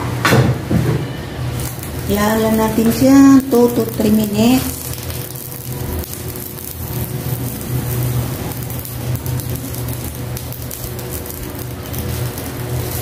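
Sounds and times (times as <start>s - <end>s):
pan bubbling under a lid: 1.8s - 13.0s.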